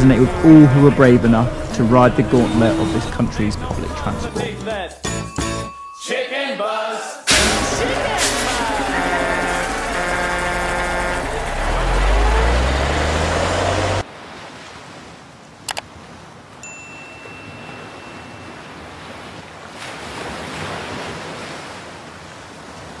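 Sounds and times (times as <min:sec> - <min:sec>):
vehicle engine speeding up: 0:07.3 - 0:14.0
rushing ocean waves: 0:07.3 - 0:23.0.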